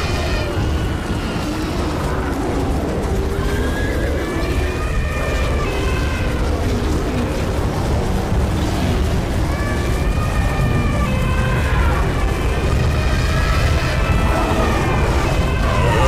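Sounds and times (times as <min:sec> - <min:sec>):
loud steady low rumble: 0:06.9 - 0:16.0
overlapping animal cries: 0:09.4 - 0:16.0.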